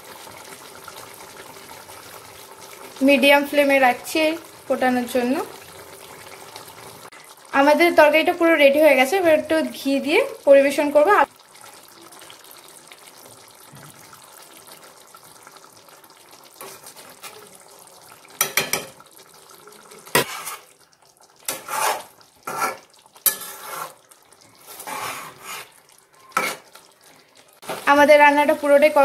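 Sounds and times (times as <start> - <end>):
curry simmering: 0.0 - 29.0
ladle scraping a pan: 16.6 - 17.5, 20.0 - 20.8, 21.4 - 26.8.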